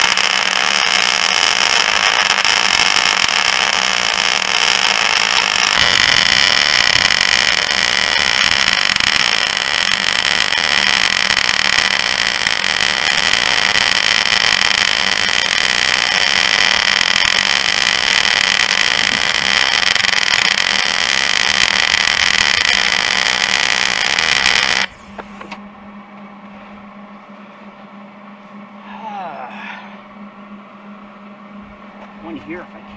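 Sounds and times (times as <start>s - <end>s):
welder arc crackling: 0.0s - 25.6s
low steady hum: 0.0s - 32.9s.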